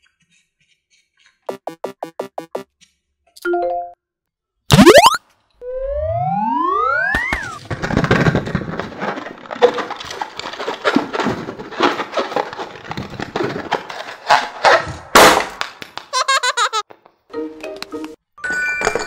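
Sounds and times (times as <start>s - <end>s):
warbling cartoon sound effect: 4.7s - 7.6s.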